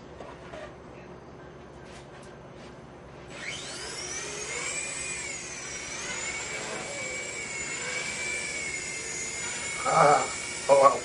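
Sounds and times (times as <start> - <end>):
rc helicopter motor whine: 3.3 - 11.0.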